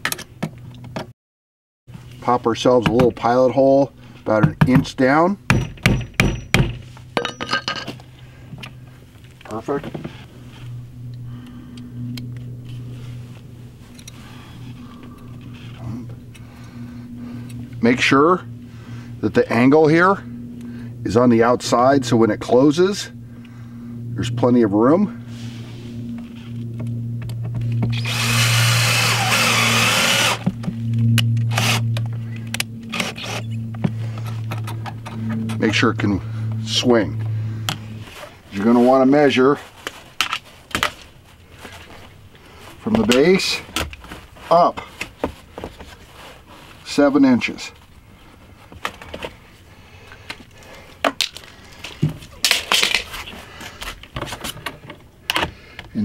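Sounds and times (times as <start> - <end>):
cordless drill driving screw: 27.9 - 30.5, 31.5 - 31.8
drill trigger bursts: 27.9 - 30.5, 31.5 - 31.8, 32.5 - 33.5.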